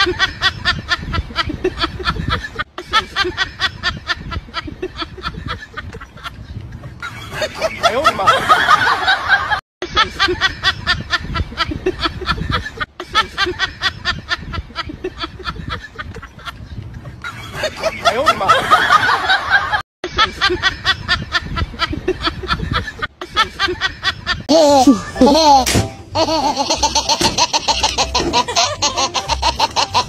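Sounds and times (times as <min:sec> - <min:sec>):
person laughing hard: 0:17.4 - 0:30.0.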